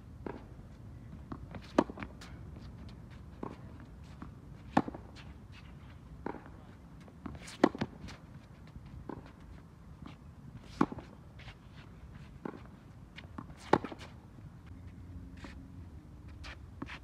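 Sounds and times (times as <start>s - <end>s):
tennis ball bouncing: 1.1s - 5.2s, 6.2s - 8.4s, 9.0s - 11.2s, 12.3s - 14.2s
tennis racket hitting ball: 1.3s - 2.3s, 7.2s - 8.0s, 13.3s - 14.2s
shoe scuffs on hard court: 7.2s - 14.2s, 16.3s - 17.0s.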